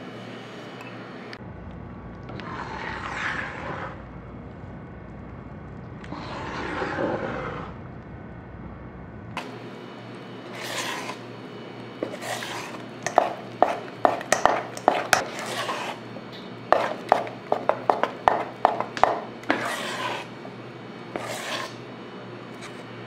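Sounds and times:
spoon stirring batter in bowl: 0:10.4 - 0:11.3, 0:12.0 - 0:21.9
spoon knocking against bowl: 0:13.1 - 0:15.2.

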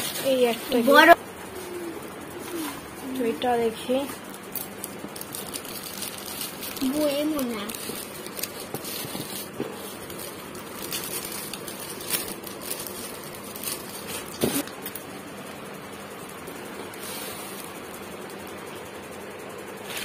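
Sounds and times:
metallic gift wrap crinkling: 0:02.6 - 0:14.7.

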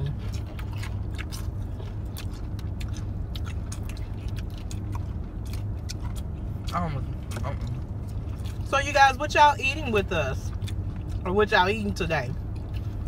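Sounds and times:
crunchy chewing: 0:00.0 - 0:08.7, 0:10.5 - 0:11.3, 0:12.3 - 0:13.0
low hum inside car: 0:00.0 - 0:13.0.

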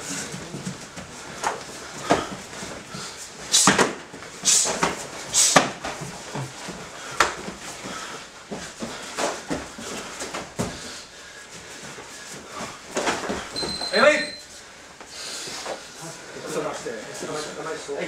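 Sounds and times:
punches and kicks landing: 0:03.6 - 0:06.1.

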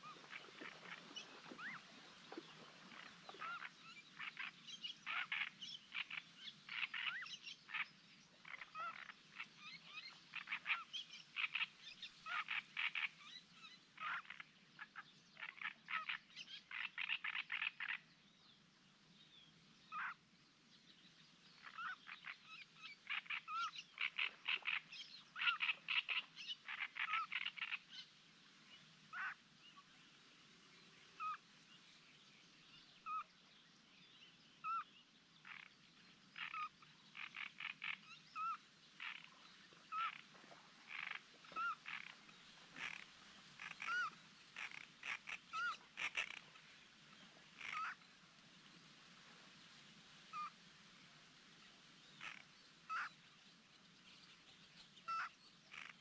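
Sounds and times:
frogs croaking: 0:08.4 - 0:13.2, 0:21.6 - 0:27.8, 0:35.4 - 0:35.7, 0:36.4 - 0:46.7, 0:47.6 - 0:48.0, 0:52.2 - 0:53.1, 0:55.0 - 0:56.0.

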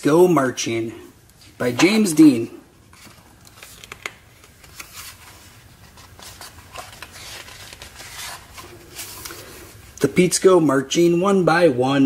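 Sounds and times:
book pages turning: 0:01.7 - 0:10.0.

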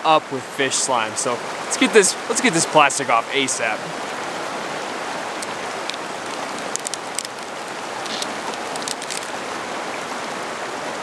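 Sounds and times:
stream rushing: 0:00.0 - 0:11.0
plastic liner crackling: 0:05.4 - 0:09.4.

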